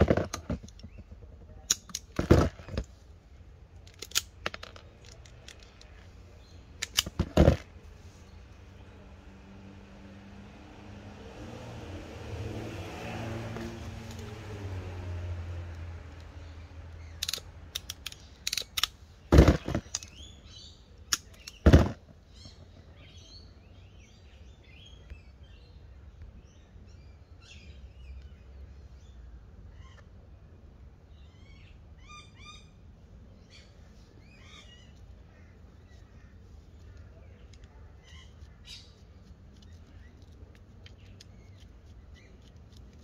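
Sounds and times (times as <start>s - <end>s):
birds chirping: 16.1s - 30.4s, 31.0s - 43.0s
ratchet crimper clicking shut: 17.2s - 18.9s.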